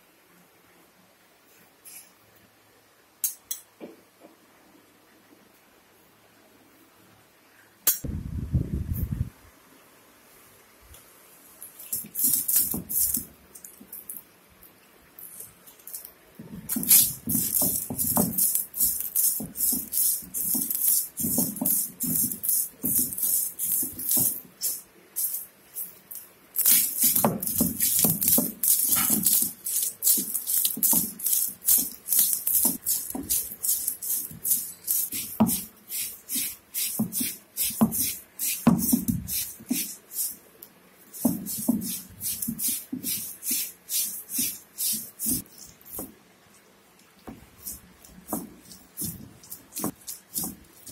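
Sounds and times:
stone roller crushing spices: 11.9s - 14.2s, 15.2s - 40.4s, 41.1s - 46.2s, 47.3s - 50.9s.

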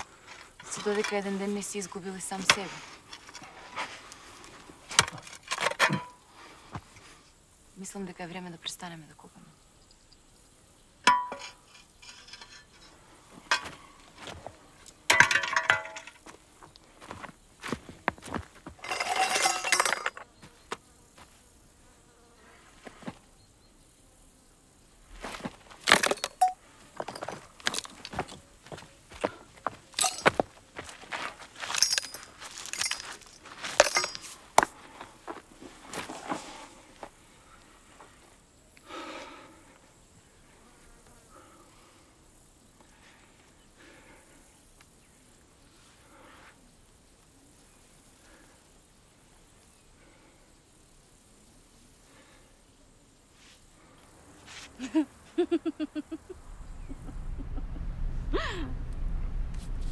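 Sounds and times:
rough scraping rustle: 0.0s - 7.3s, 11.4s - 21.5s, 25.0s - 28.4s, 30.0s - 38.4s, 53.3s - 54.9s
flying insects buzzing: 0.0s - 59.9s
rocks knocking together: 25.2s - 28.4s.

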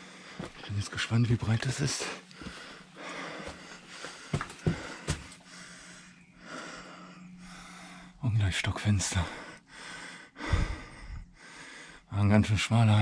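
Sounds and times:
man breathing heavily: 0.0s - 0.7s, 1.9s - 8.2s, 9.1s - 12.1s
sharp steps on a path: 2.3s - 5.4s.

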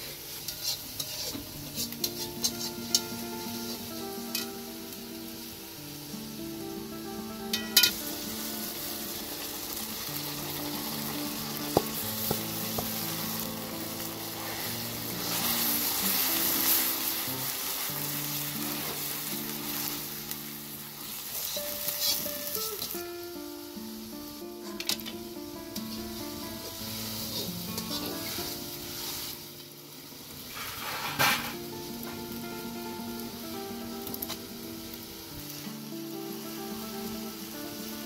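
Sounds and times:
soft background music: 0.0s - 38.0s
tomato frying in hot oil: 0.0s - 38.0s.

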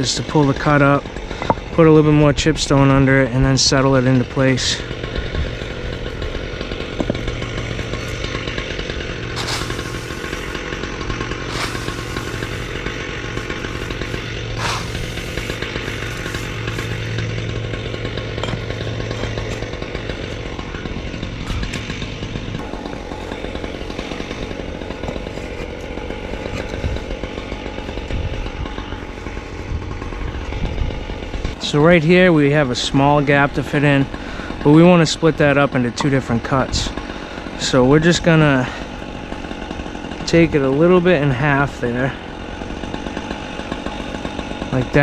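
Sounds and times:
small gas engine running: 0.0s - 45.0s
hissing bursts: 9.2s - 17.2s.

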